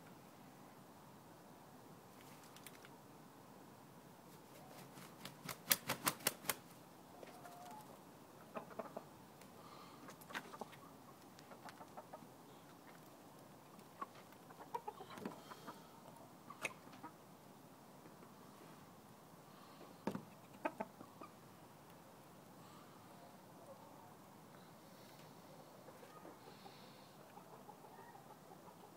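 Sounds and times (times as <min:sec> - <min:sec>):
chickens clucking: 0:07.1 - 0:09.2, 0:10.0 - 0:17.2, 0:19.8 - 0:21.5, 0:25.1 - 0:28.9.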